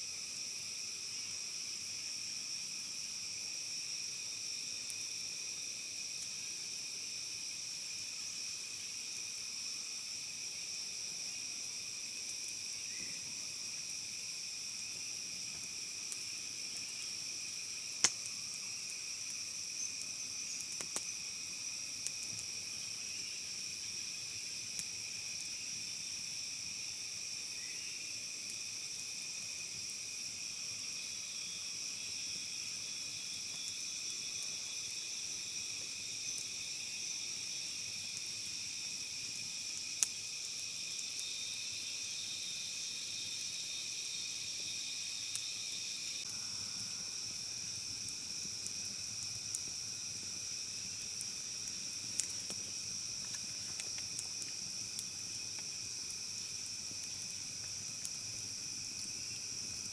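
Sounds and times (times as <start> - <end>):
forest insects chorus: 0.0 - 59.9
campfire wood popping: 8.7 - 27.3, 28.4 - 41.4, 45.3 - 59.9.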